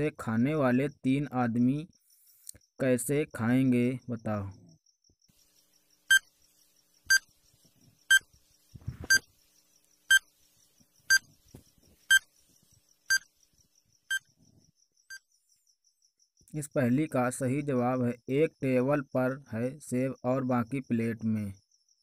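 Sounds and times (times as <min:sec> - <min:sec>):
short electronic beeps: 0:09.0 - 0:09.3.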